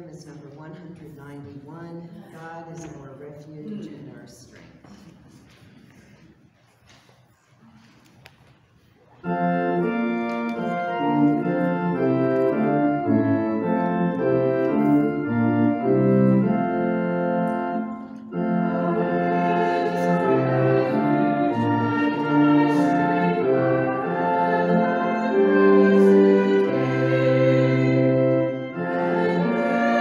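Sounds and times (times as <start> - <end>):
organ playing a hymn: 9.2 - 30.0.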